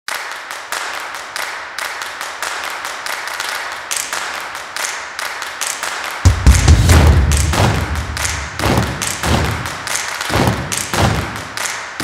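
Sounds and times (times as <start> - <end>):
sharp noisy percussive hits: 6.3 - 11.6.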